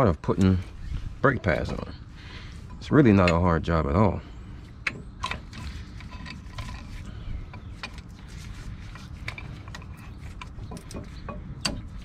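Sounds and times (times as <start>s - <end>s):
c-clamp metallic clicks and creaks: 8.9s - 12.0s.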